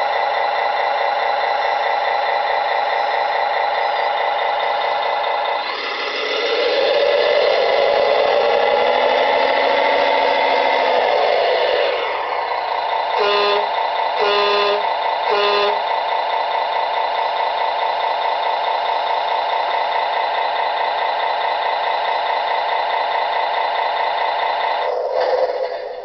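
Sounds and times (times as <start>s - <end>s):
simulated engine sound from speaker: 0.0s - 26.0s.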